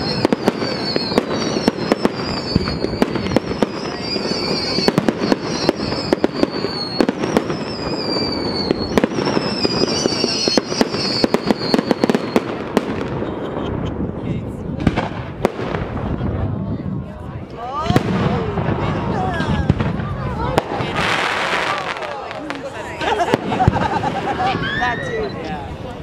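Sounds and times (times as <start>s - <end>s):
fireworks whistles: 0.0s - 14.0s, 17.8s - 25.7s
fireworks bangs and crackling: 0.0s - 26.0s.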